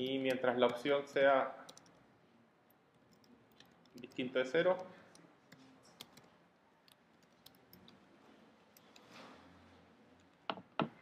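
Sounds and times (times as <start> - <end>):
computer keys clicking: 1.7 - 2.0, 3.0 - 6.3, 6.9 - 8.0.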